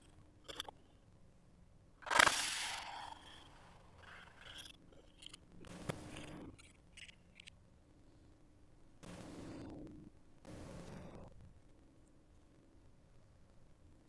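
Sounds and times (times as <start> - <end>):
small clicks: 2.0 - 7.6.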